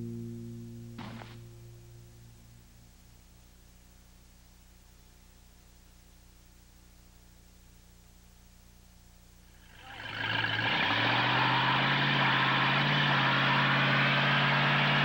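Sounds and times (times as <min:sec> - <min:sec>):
car engine at high revs: 0:09.6 - 0:15.0.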